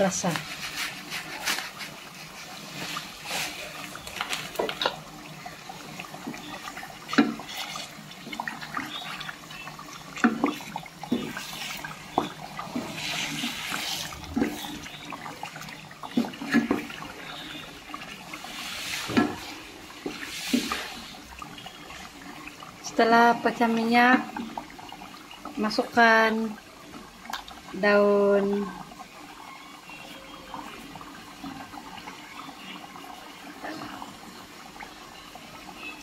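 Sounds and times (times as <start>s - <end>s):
wooden spatula scraping a pot: 0.0s - 4.9s, 10.2s - 15.1s, 18.4s - 21.2s
thick sauce sloshing and sizzling: 0.0s - 32.7s.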